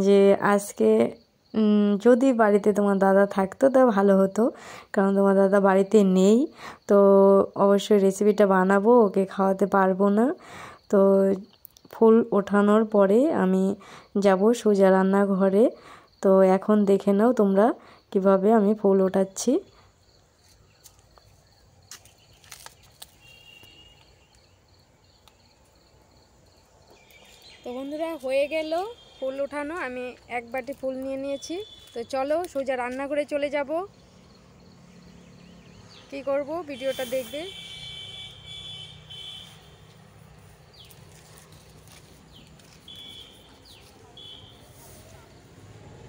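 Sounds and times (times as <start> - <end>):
insect chirping faintly: 0.0 - 46.0
snaps and rustles of plucking flowers: 20.4 - 24.5, 29.7 - 33.2, 39.4 - 44.4
bird trilling: 42.3 - 44.7.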